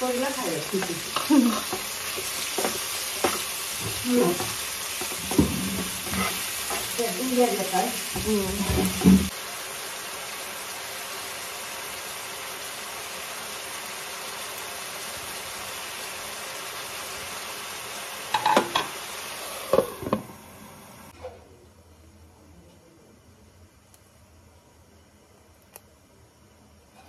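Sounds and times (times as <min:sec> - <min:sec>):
vegetables sizzling in frying pan: 0:00.0 - 0:21.2.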